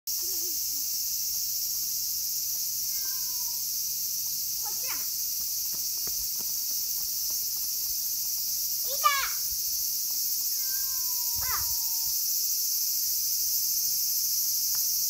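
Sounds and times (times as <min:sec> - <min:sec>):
insect chorus buzzing: 0:00.1 - 0:15.0
cat meowing: 0:02.9 - 0:03.6, 0:10.6 - 0:12.1.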